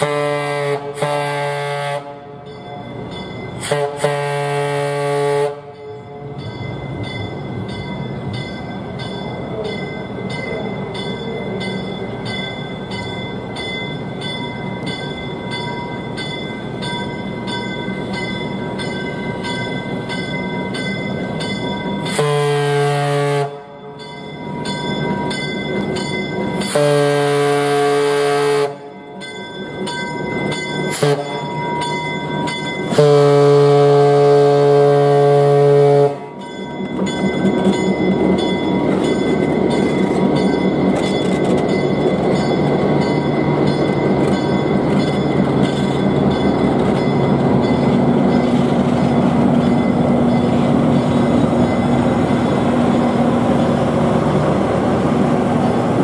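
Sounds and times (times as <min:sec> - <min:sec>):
locomotive horn blasts: 0:00.0 - 0:02.4, 0:03.6 - 0:05.9, 0:22.1 - 0:23.8, 0:26.6 - 0:28.9, 0:30.9 - 0:31.4, 0:32.9 - 0:36.4
bell ringing steadily: 0:02.3 - 0:04.0, 0:05.7 - 0:22.5, 0:23.4 - 0:34.0, 0:36.0 - 0:54.8.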